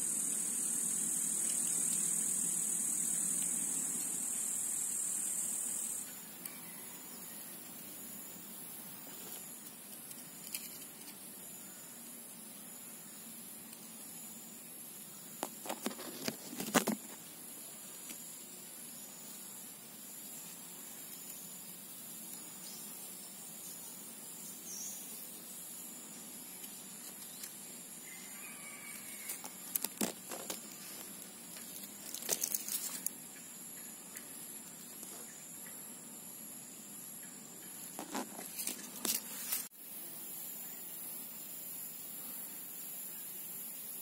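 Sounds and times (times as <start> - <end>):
high-pitched insect chorus: 0.0 - 44.0
crackling clicks: 29.3 - 33.2.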